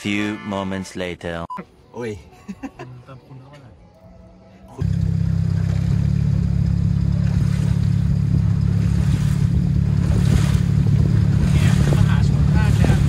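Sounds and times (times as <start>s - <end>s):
boat engine droning: 4.8s - 13.0s
water rushing along hull: 4.8s - 13.0s.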